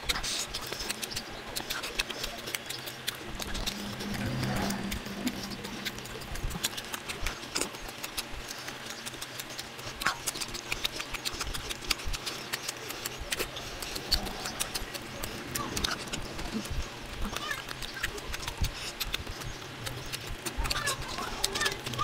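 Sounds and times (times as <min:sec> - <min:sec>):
chewing and smacking: 0:00.0 - 0:22.0.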